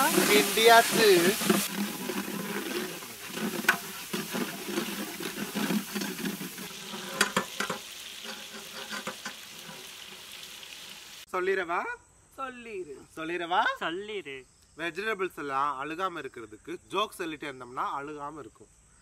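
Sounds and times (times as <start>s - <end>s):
metal spatula scraping a pan: 0.0s - 10.5s
vegetables sizzling in a pan: 0.0s - 11.3s.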